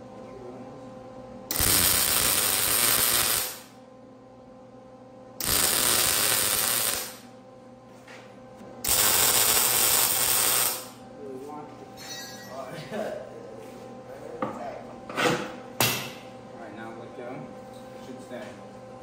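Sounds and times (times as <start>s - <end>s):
welding arc crackling: 1.5s - 3.7s, 5.4s - 7.3s, 8.8s - 11.0s.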